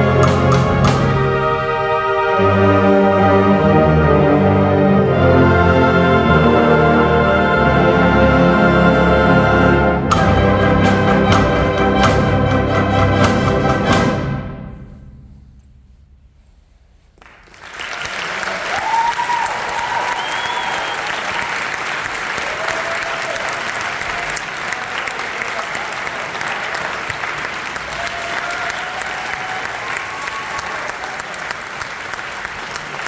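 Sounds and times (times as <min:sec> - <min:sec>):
concert band playing: 0:00.0 - 0:16.5
audience applause: 0:17.2 - 0:33.0
cheers: 0:17.7 - 0:33.0.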